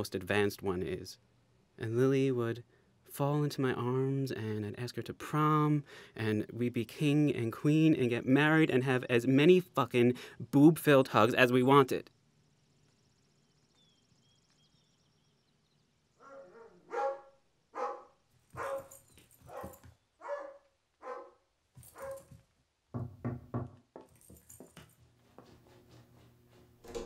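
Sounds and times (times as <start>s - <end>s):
dog barking: 16.2s - 22.3s.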